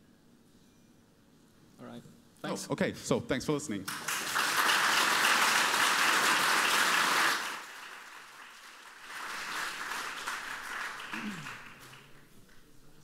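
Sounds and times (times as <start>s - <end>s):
audience applauding: 3.9s - 12.6s.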